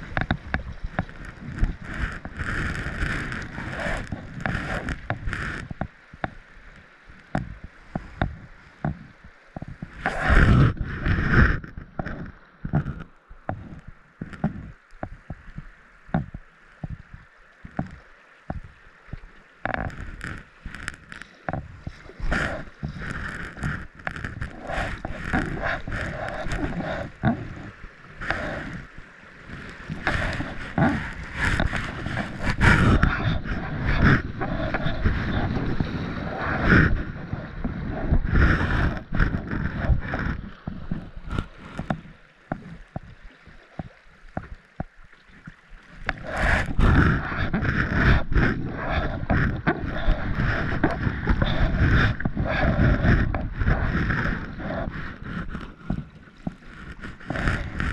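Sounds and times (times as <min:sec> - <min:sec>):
paddle splashing: 0:00.0 - 0:57.9
water rushing against hull: 0:00.0 - 0:57.9
small clicks and knocks: 0:00.1 - 0:06.4, 0:07.1 - 0:21.7.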